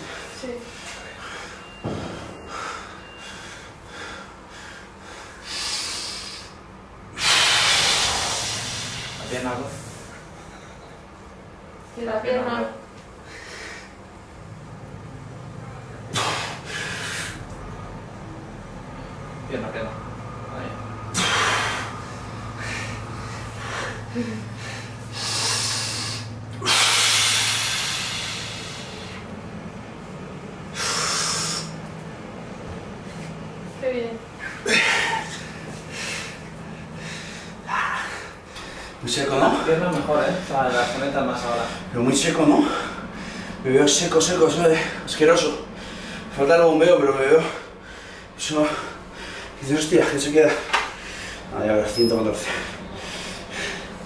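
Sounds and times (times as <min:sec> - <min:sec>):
person breathing hard: 0:00.0 - 0:11.0, 0:13.2 - 0:14.0, 0:16.1 - 0:17.5, 0:21.1 - 0:29.3, 0:30.7 - 0:31.8, 0:34.4 - 0:39.7, 0:42.6 - 0:43.6, 0:44.7 - 0:46.4, 0:47.4 - 0:49.6, 0:50.6 - 0:51.5, 0:52.4 - 0:54.0
person breathing out hard: 0:07.2 - 0:09.3.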